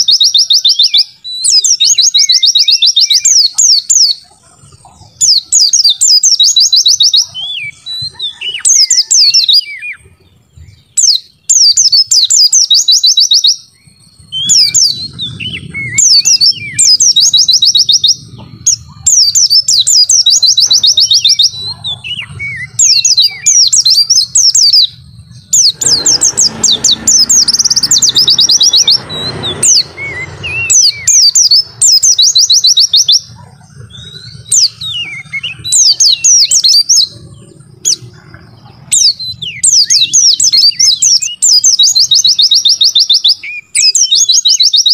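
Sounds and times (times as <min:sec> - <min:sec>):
bird singing high trills: 0:00.0 - 0:44.9
lower bird chirps: 0:00.0 - 0:44.9
rough rushing noise: 0:13.8 - 0:40.4.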